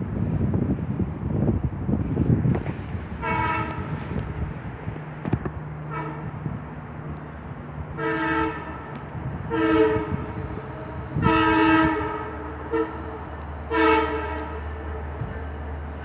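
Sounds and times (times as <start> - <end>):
steady low rumble: 0.0 - 16.0
train horn blasts: 3.2 - 4.4, 5.8 - 6.7, 7.8 - 16.0.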